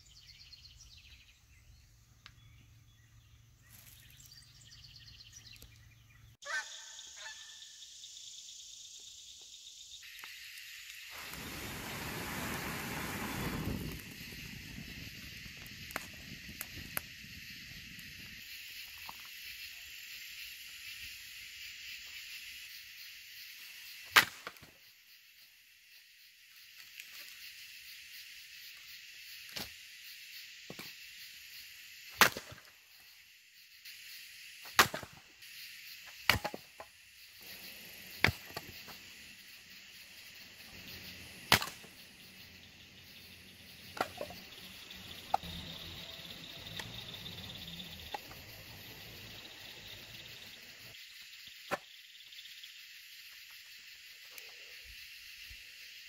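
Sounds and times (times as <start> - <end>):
night insects chorus: 0.0 - 56.0
axe splitting wood: 32.2 - 32.6, 34.8 - 35.2, 36.3 - 36.6, 41.5 - 41.8.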